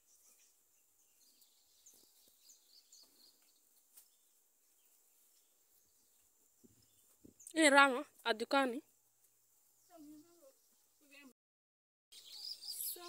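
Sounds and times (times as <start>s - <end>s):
high bird chirps: 12.1s - 13.0s.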